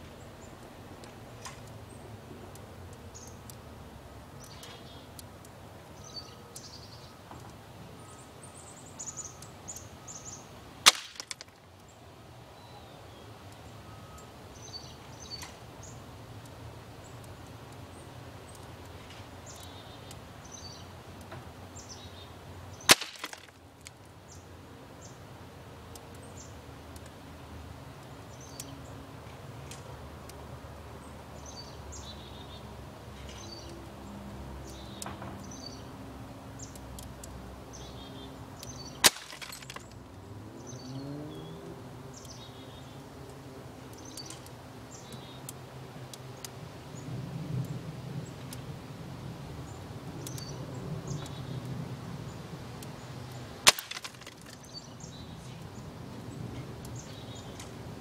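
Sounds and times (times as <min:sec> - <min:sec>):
pellet gun shots: 0:10.9 - 0:11.5, 0:22.9 - 0:23.5, 0:39.0 - 0:39.9, 0:53.7 - 0:54.3.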